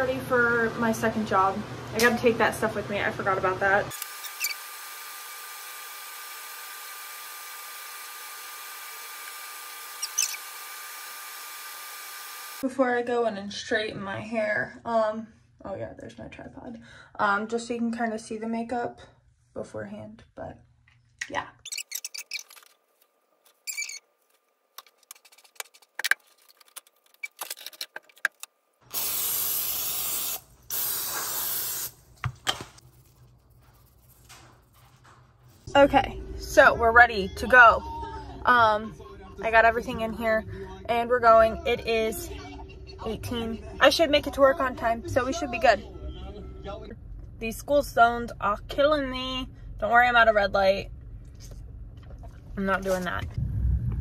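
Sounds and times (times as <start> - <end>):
electric blower motor running: 3.9 - 12.6
aerosol can hissing: 28.9 - 32.0.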